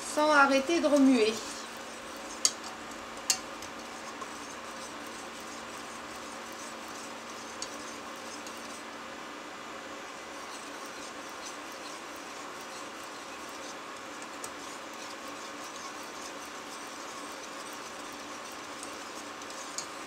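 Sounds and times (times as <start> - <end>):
whisk scraping a saucepan: 0.8 - 8.9, 10.1 - 20.0
whisk clinking against pan: 10.4 - 20.0.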